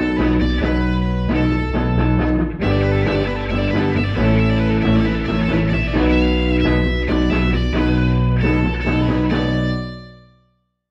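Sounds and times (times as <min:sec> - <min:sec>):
guitar-led background music: 0:00.0 - 0:10.6.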